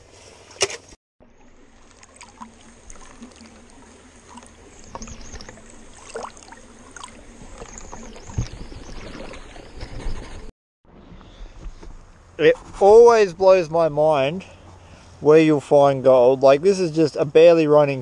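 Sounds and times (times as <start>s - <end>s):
water sloshing in a plastic pan: 1.5s - 10.5s.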